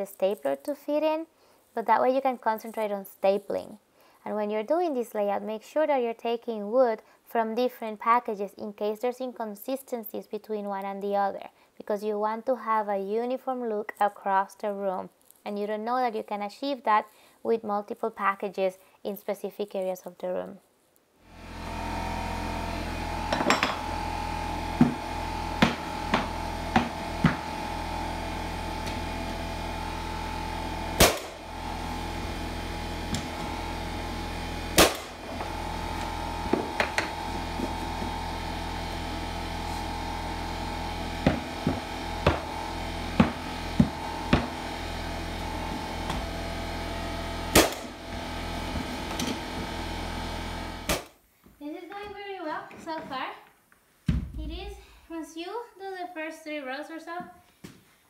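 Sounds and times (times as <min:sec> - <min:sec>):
steady hum: 0:21.3 - 0:51.2
mallet knocking on flooring stapler: 0:24.8 - 0:25.0, 0:25.6 - 0:27.5, 0:36.5 - 0:37.2, 0:41.2 - 0:42.5, 0:43.2 - 0:44.6.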